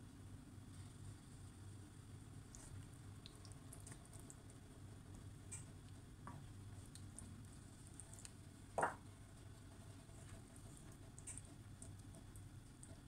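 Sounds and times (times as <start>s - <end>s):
curry bubbles popping: 8.0s - 9.1s.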